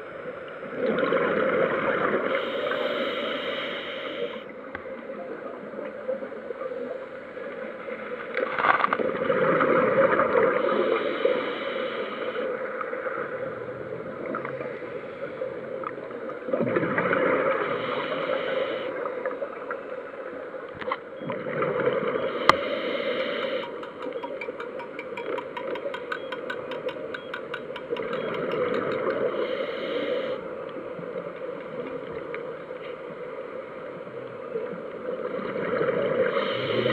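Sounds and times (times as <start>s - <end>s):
regulator exhaust bubbling underwater: 21.4s - 29.5s.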